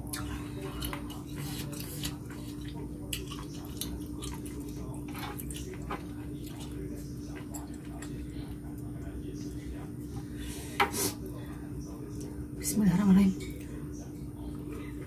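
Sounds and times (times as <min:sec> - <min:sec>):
wet chewing and squelching: 0:00.0 - 0:08.2
steady low hum: 0:00.0 - 0:15.0.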